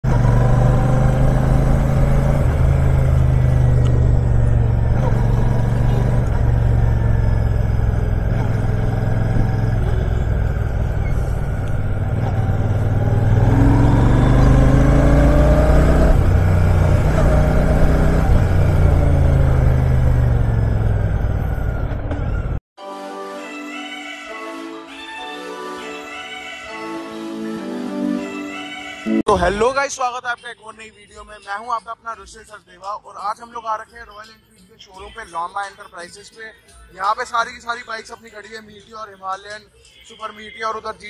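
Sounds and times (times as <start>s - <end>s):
motorcycle engine running: 0.0s - 22.6s.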